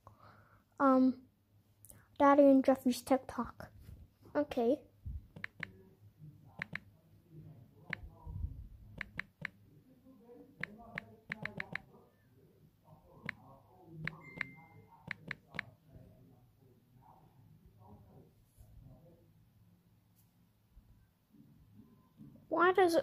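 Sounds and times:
taps on smartphone touchscreen: 10.6 - 11.8
brief high beep: 14.2 - 14.8.

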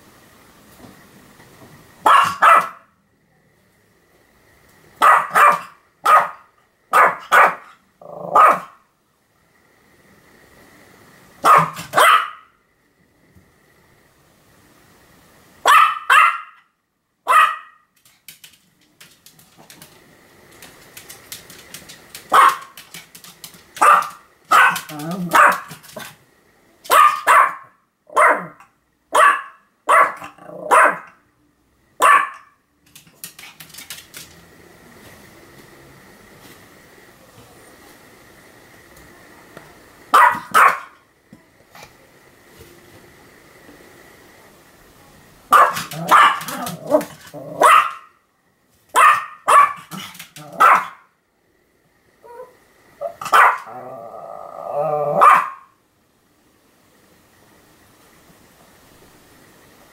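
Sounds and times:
small dog barking: 2.0 - 2.9, 5.0 - 8.8, 11.4 - 12.6, 15.6 - 17.9, 22.3 - 22.8, 23.8 - 26.1, 26.8 - 31.2, 32.0 - 32.6, 40.1 - 41.0, 45.5 - 48.2, 48.9 - 51.1, 52.2 - 53.8, 54.9 - 55.8.

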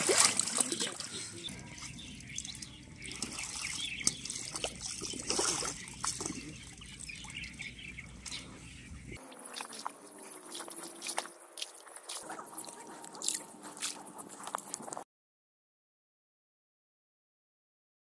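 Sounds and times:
small splashes: 0.0 - 8.5, 9.2 - 14.8
muddy water sloshing: 0.0 - 15.0.

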